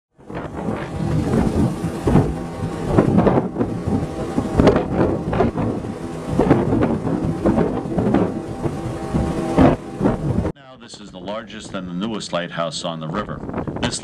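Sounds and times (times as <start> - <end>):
water churning in boat wake: 0.2 - 10.5.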